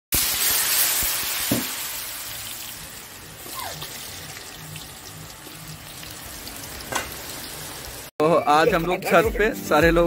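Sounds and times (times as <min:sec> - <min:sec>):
hot oil sizzling: 0:00.1 - 0:08.1.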